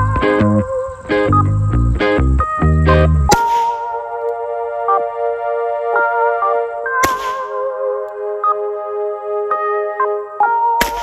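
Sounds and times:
electronic background music: 0.0s - 11.0s
pistol shot: 3.3s - 3.9s, 7.0s - 7.6s, 10.8s - 11.0s.

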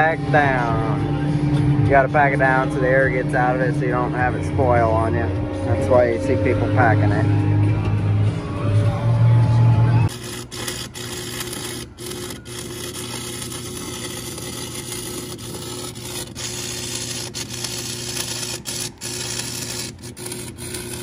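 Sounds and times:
low hum: 0.0s - 21.0s
arc welding crackling sizzle: 10.1s - 21.0s.

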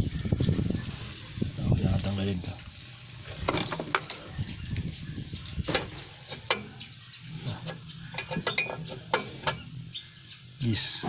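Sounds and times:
hand tools clicking and tapping: 7.7s - 9.6s.

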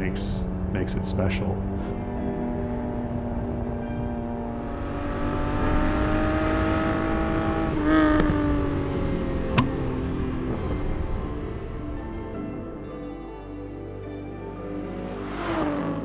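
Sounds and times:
car engine accelerating: 0.0s - 12.8s, 14.4s - 16.0s
sharp snap: 9.5s - 9.8s.

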